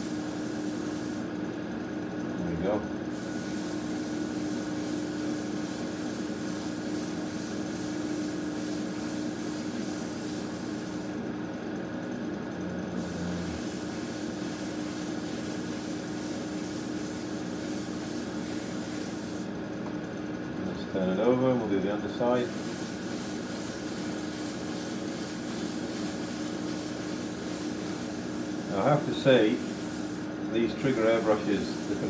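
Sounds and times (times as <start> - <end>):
airbrush hissing: 0.0 - 1.3, 3.1 - 11.2, 13.0 - 19.5, 22.4 - 32.0.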